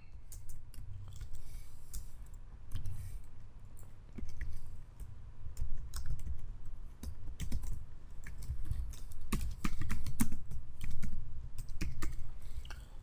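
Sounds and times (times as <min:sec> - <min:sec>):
typing on a keyboard: 0:00.3 - 0:01.3, 0:05.5 - 0:12.3.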